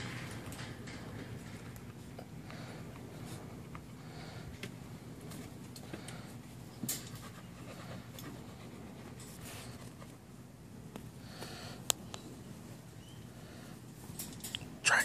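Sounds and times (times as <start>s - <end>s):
dog panting: 7.0s - 10.3s.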